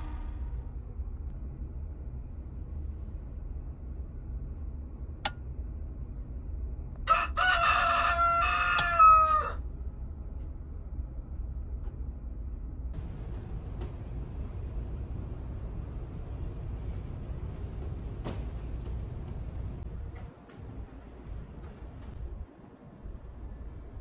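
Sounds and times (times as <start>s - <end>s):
steady low hum: 0.0s - 24.0s
rooster crowing: 7.0s - 9.6s.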